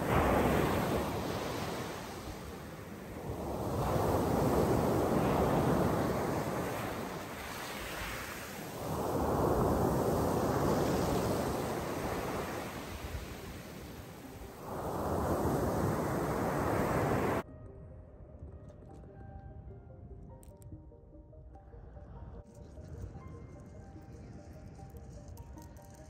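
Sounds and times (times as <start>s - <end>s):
waves washing up pebble beach: 0.0s - 17.4s.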